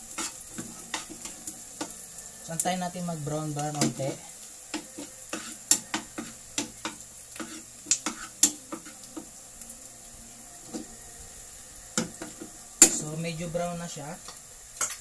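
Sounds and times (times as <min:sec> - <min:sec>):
metal spoon scraping a frying pan: 0:00.0 - 0:02.0, 0:03.6 - 0:09.3
faint steady sizzle: 0:00.0 - 0:15.0.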